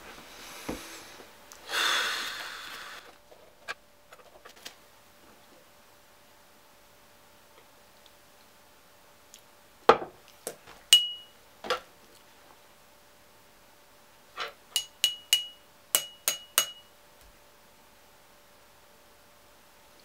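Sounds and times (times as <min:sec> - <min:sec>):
pen tapping a glass: 0:11.0 - 0:11.3, 0:14.8 - 0:16.9.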